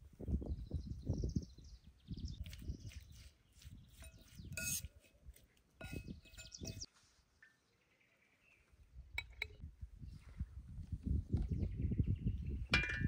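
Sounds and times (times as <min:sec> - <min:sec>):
fork scraping metal bowl: 0:03.9 - 0:05.1.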